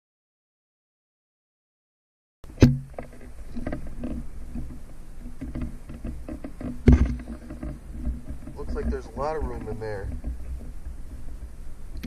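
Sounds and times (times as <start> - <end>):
sharp knock: 2.6 - 3.0
camera handling rumble and scrapes: 2.7 - 12.0.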